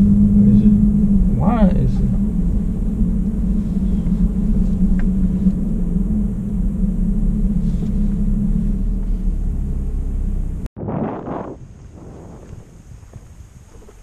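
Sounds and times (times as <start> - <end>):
vehicle engine rumble from inside: 0.0 - 10.7.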